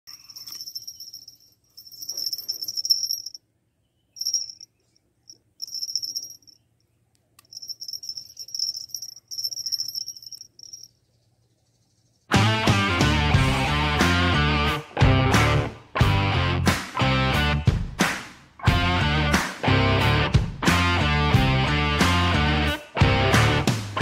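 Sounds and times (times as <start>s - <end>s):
insects trilling: 7.5s - 11.0s.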